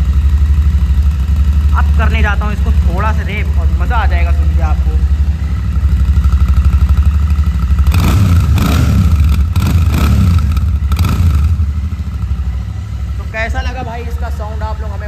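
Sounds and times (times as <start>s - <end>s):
motorcycle engine idling and revving: 0.0s - 15.0s.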